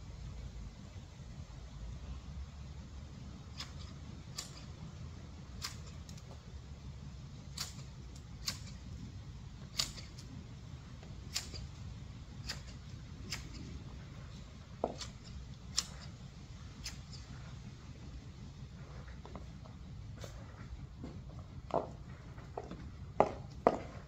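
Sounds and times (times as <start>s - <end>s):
low steady rumble: 0.0s - 24.0s
garden shears clicking: 3.5s - 4.9s, 5.5s - 6.4s, 7.4s - 9.0s, 9.6s - 10.3s, 11.0s - 17.6s
shears squeaking: 12.4s - 17.6s.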